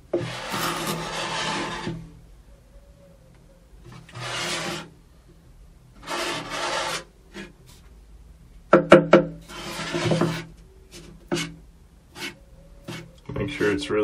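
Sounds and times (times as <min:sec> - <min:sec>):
wooden strip scraping plywood: 0:00.1 - 0:02.1, 0:03.9 - 0:04.9, 0:06.0 - 0:07.5, 0:09.4 - 0:11.6, 0:12.2 - 0:13.1.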